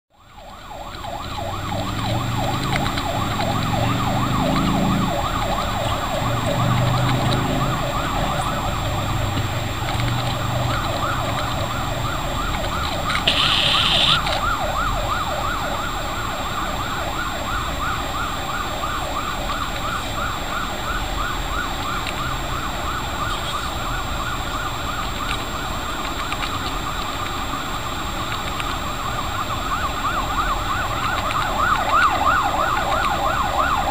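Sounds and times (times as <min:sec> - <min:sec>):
high siren blare: 0:00.1 - 0:33.9
police siren warbling: 0:00.1 - 0:33.9
traffic noise: 0:00.1 - 0:33.9.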